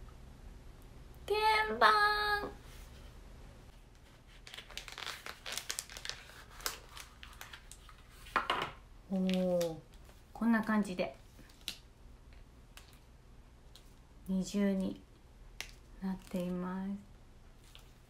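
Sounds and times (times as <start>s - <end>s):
woman's high-pitched vocal sound: 1.3s - 2.6s
packaging crinkling: 3.9s - 8.3s.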